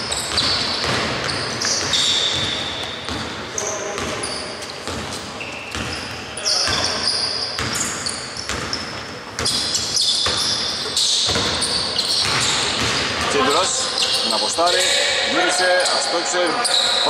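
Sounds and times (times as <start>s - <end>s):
sneakers squeaking on floor: 0.0s - 17.0s
basketball bouncing on hardwood: 0.1s - 3.4s, 4.8s - 5.1s, 11.3s - 13.3s.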